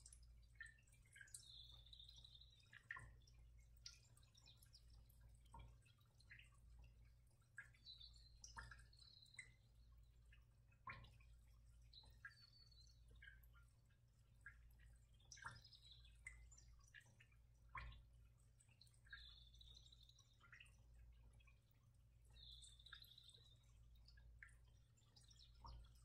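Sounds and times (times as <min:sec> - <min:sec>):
soft ticks: 0:00.0 - 0:20.8.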